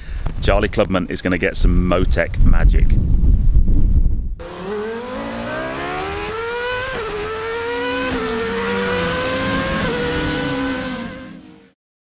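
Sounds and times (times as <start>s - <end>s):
car engine accelerating through gears: 4.4s - 11.7s.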